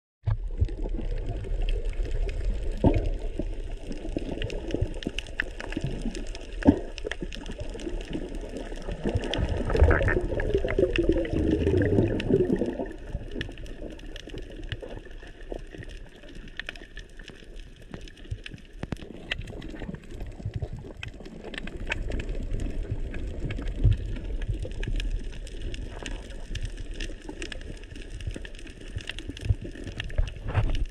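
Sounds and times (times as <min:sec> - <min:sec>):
bubbling gurgle: 0:00.2 - 0:30.9
sharp clicks underwater: 0:00.2 - 0:30.9
underwater water rush: 0:00.2 - 0:30.9.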